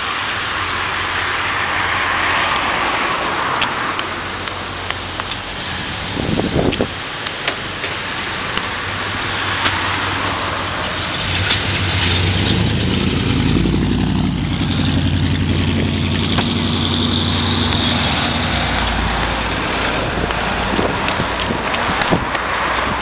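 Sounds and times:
car engine rumbling: 0.0 - 23.0.

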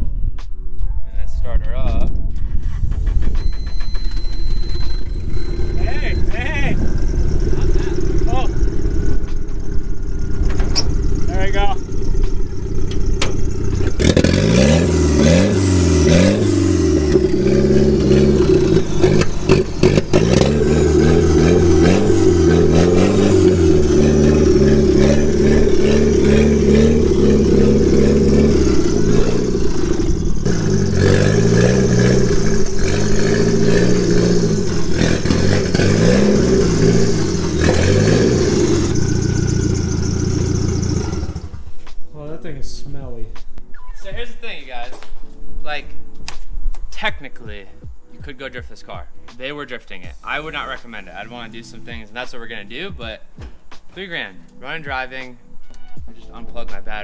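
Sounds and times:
car engine revving: 2.6 - 41.9.

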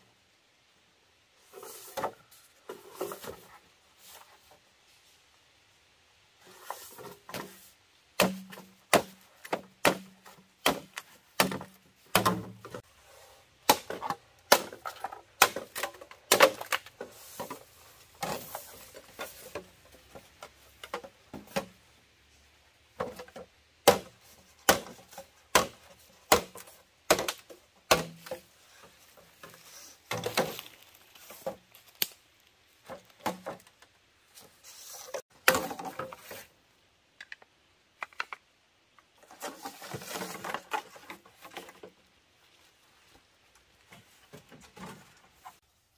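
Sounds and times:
chopping strikes on wood: 8.2 - 12.6, 13.6 - 14.8, 23.0 - 28.4.

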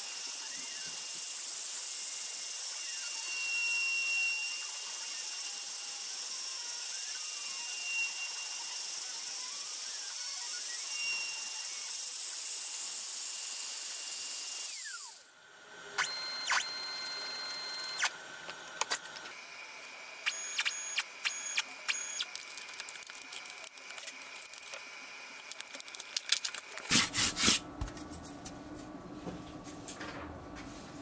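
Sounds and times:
stepper motors whining: 0.2 - 1.1, 14.7 - 15.3, 16.0 - 26.9
spindle motor whining: 16.0 - 26.6.

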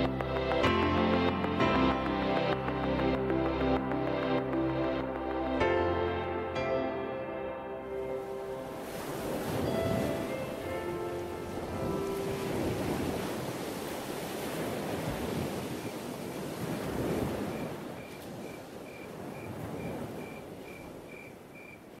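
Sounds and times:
rushing surf-like noise: 8.0 - 21.1.

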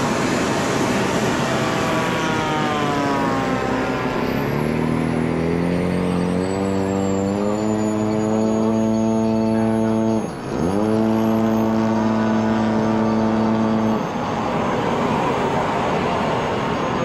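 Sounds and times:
model airplane engine running: 0.0 - 17.0
steady rushing noise: 0.0 - 17.0.

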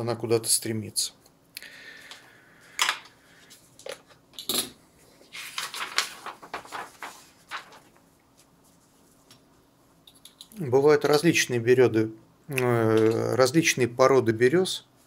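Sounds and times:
paper rustling and sliding: 5.2 - 9.4.

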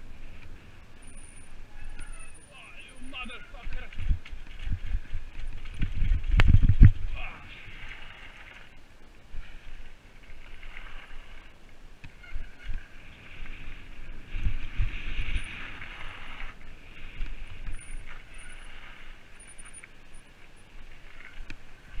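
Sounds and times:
wind on microphone: 3.0 - 8.6, 9.2 - 19.2.

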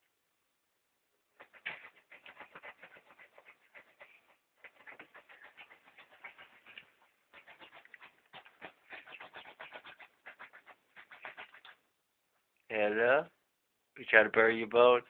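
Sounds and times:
dog scratching fabric: 1.4 - 11.8.

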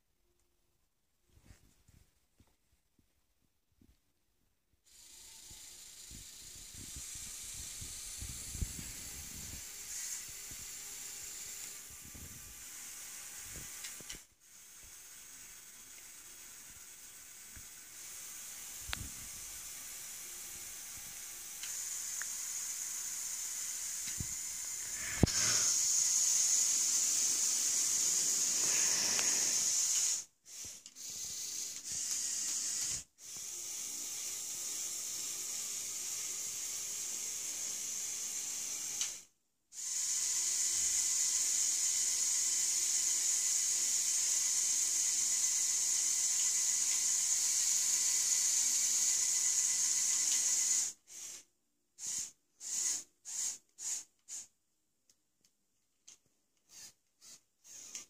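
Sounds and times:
toy electric motors whirring: 4.9 - 54.5, 56.1 - 58.0
click: 56.0 - 56.7.

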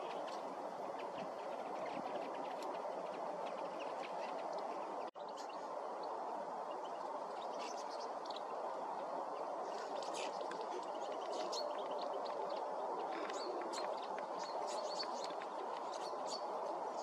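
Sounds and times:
finches calling: 6.6 - 17.0.

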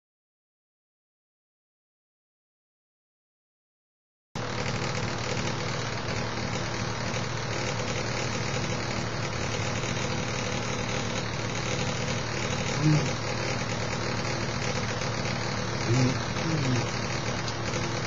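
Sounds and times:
mechanical hum with hiss: 4.5 - 18.0.

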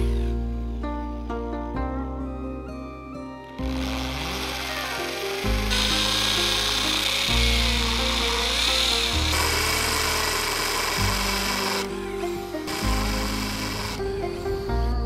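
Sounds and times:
background music with bass notes: 0.0 - 15.0
woodworking tool hissing: 3.6 - 14.6.

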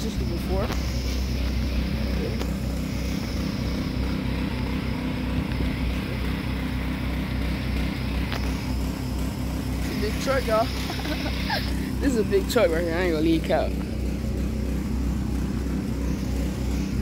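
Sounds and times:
engine running: 0.0 - 17.0.

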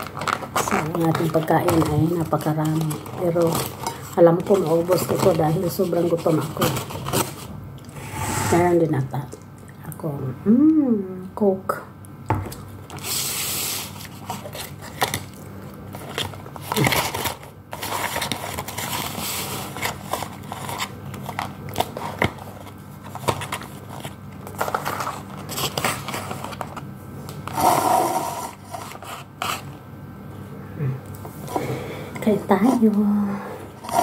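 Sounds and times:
paper packaging rustling: 0.0 - 7.6, 13.0 - 26.9.

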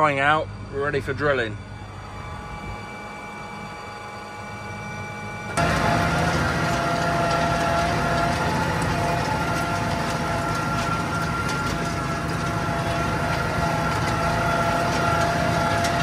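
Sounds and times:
steady high whine: 0.0 - 16.0
tractor engine under load: 5.5 - 16.0.

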